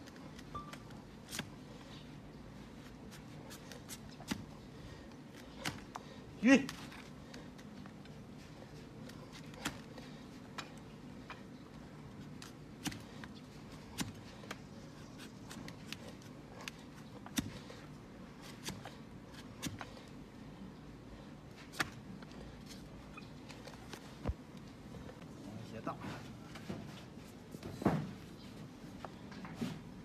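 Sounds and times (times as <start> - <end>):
low steady hum: 0.0 - 30.0
hoof knife cutting hoof: 2.9 - 4.7, 12.2 - 20.0.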